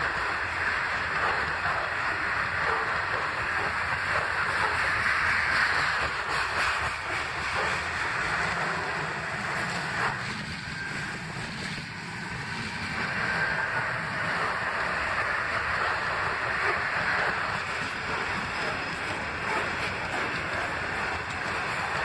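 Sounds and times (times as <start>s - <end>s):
freight train wheels rumbling: 0.0s - 22.0s.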